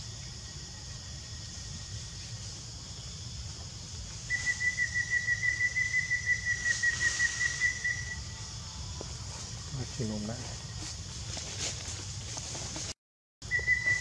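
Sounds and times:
steady high hiss: 0:00.0 - 0:12.6
high pulsing whistling call: 0:04.2 - 0:08.5, 0:13.4 - 0:14.0.

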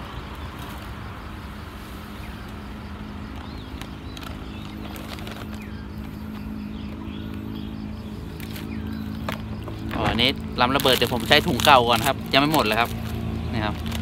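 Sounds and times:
birds chirping: 0:00.0 - 0:14.0
low motor hum: 0:00.0 - 0:14.0
plastic bag rustling: 0:03.2 - 0:07.0, 0:08.3 - 0:14.0.

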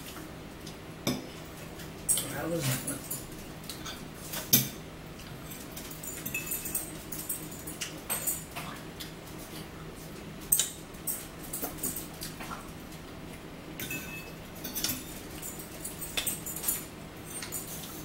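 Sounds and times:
cutlery clinking on plates: 0:05.5 - 0:08.8, 0:13.8 - 0:18.0.

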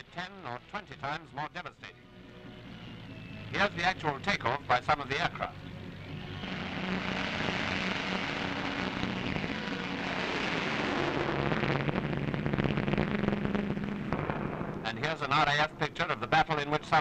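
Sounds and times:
aircraft piston engines droning: 0:00.0 - 0:10.0.

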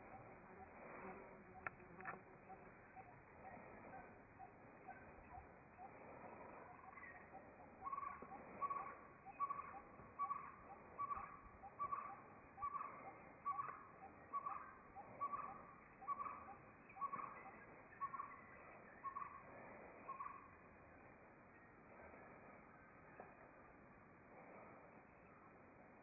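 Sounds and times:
hornbill calling: 0:06.7 - 0:18.4.

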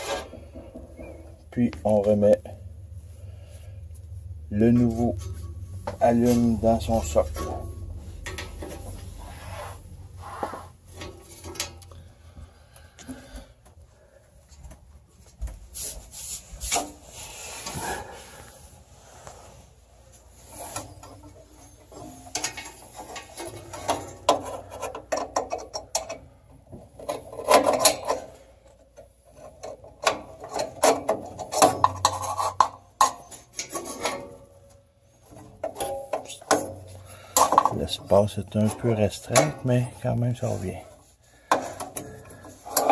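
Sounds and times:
metal scraping and clicking on metal: 0:20.5 - 0:40.4.

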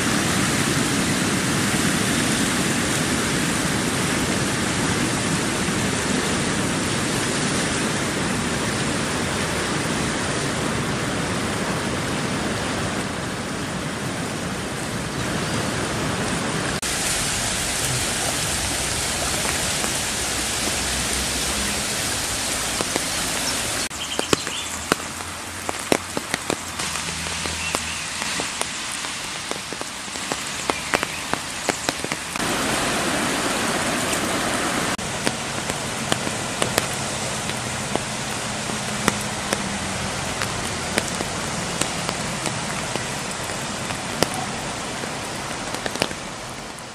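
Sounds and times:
fast-flowing river: 0:00.0 - 0:46.9
rain: 0:00.0 - 0:46.9
sharp taps: 0:35.2 - 0:38.1, 0:38.7 - 0:39.7.

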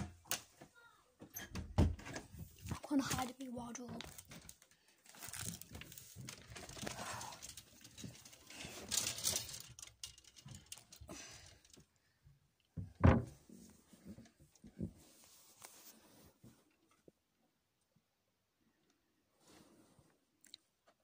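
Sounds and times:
clothes and phone rustling: 0:02.0 - 0:09.8, 0:13.2 - 0:17.0.

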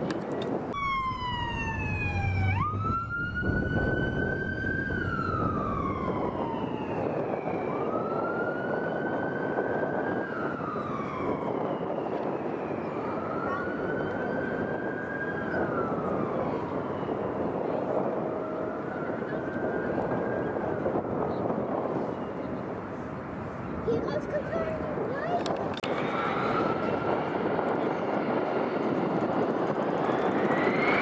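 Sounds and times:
steady rushing noise: 0:00.5 - 0:07.2
siren wailing: 0:00.7 - 0:21.5, 0:25.8 - 0:31.0.

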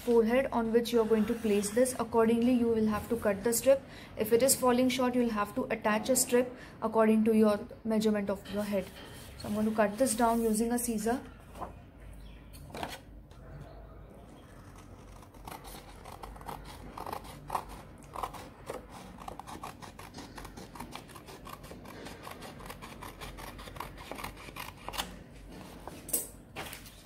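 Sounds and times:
scissors snipping paper: 0:14.6 - 0:25.2.

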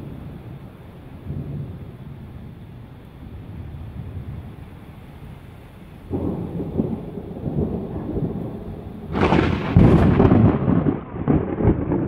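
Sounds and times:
thunder rumbling and crashing: 0:06.1 - 0:12.0.

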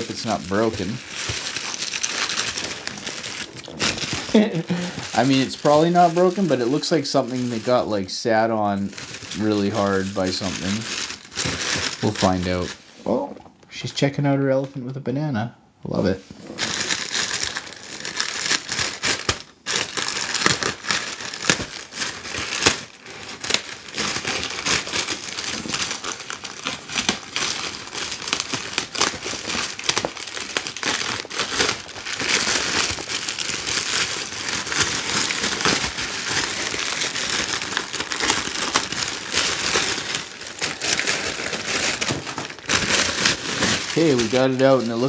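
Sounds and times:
plastic mailer crinkling and tearing: 0:00.0 - 0:12.8, 0:16.5 - 0:45.0.

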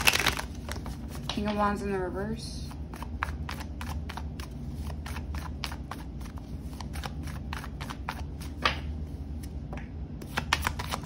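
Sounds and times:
cards being shuffled: 0:00.0 - 0:01.7, 0:02.9 - 0:09.6, 0:10.2 - 0:11.0.

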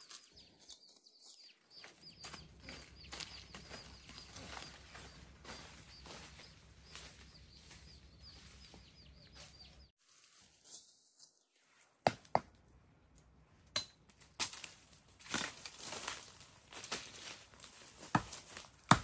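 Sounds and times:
bird chirping: 0:00.0 - 0:09.9
footsteps rustling through dry leaves: 0:00.0 - 0:12.0, 0:14.5 - 0:18.9.

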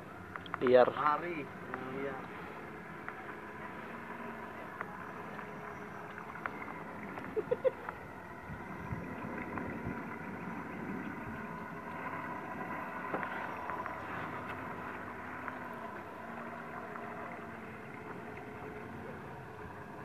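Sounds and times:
boat motor humming: 0:00.0 - 0:20.0
water noise: 0:00.0 - 0:20.0
light ticks: 0:00.2 - 0:00.7.

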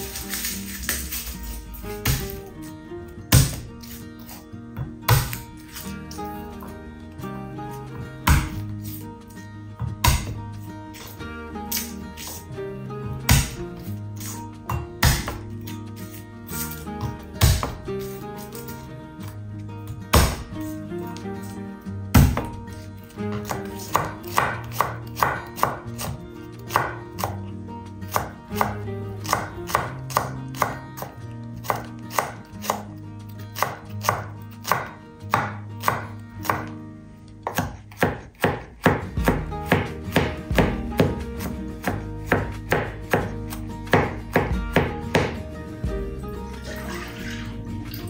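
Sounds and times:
knife chopping on cutting board: 0:03.3 - 0:05.8, 0:09.9 - 0:10.4, 0:13.3 - 0:13.6, 0:14.2 - 0:15.5, 0:16.6 - 0:17.8, 0:20.1 - 0:20.5, 0:22.2 - 0:22.6, 0:23.3 - 0:27.4, 0:28.1 - 0:32.9, 0:33.6 - 0:36.8, 0:37.4 - 0:45.4.

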